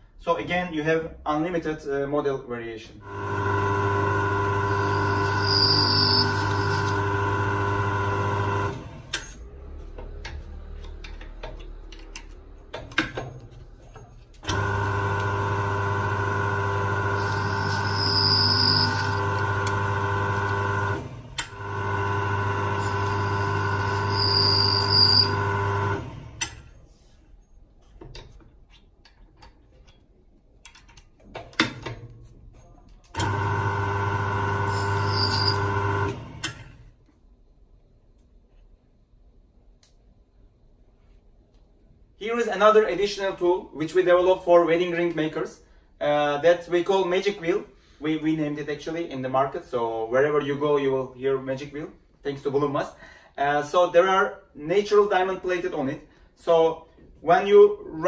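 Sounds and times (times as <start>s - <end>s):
lathe motor humming: 3.0s - 9.1s, 14.5s - 26.4s, 33.2s - 36.5s
high scraping on metal ring: 4.7s - 7.0s, 17.2s - 19.2s, 22.8s - 25.4s, 34.7s - 35.6s.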